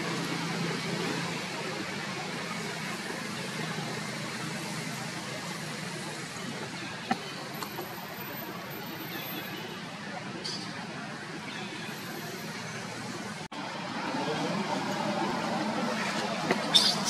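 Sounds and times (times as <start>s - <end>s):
distant road traffic: 0.0s - 17.0s.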